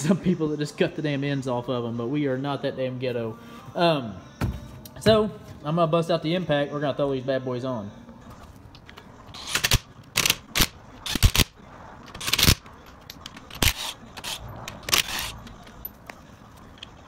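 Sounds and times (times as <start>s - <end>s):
impact wrench bursts: 9.3s - 11.5s, 12.1s - 12.6s, 13.3s - 15.6s.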